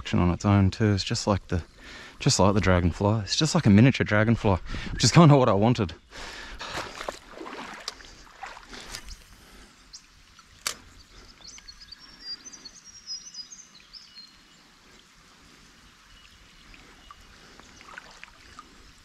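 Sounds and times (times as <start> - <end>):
faint outdoor ambience by water: 0.0 - 19.0
sharp click: 10.6 - 10.8.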